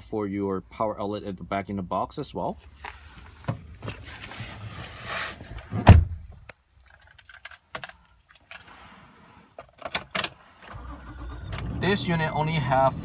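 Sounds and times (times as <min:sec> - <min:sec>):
car keys jangling: 0:06.8 - 0:08.8.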